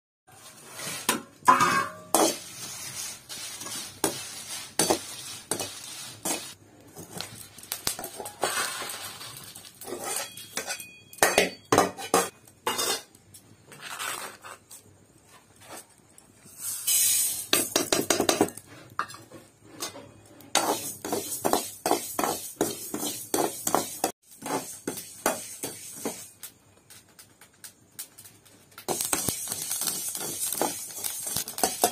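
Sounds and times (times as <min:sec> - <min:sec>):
metal cookware clinking and scraping: 0:00.3 - 0:02.7, 0:03.4 - 0:14.0, 0:16.7 - 0:26.3, 0:28.9 - 0:31.9
brief hiss: 0:16.5 - 0:17.5.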